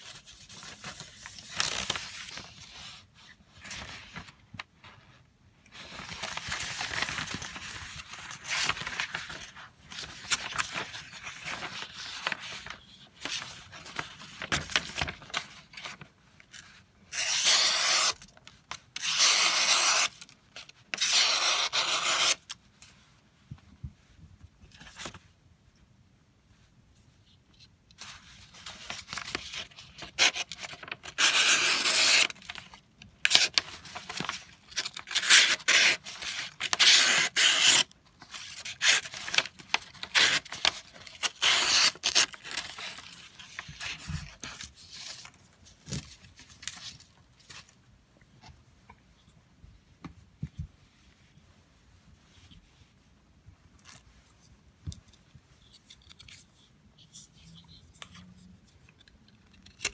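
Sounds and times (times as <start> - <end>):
knife cutting paper: 17.1 - 18.3, 19.0 - 22.6, 30.0 - 32.6, 33.3 - 43.6.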